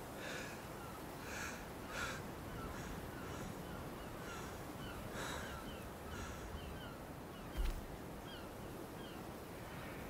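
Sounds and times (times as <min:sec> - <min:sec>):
harsh bird caws: 0:01.2 - 0:07.0.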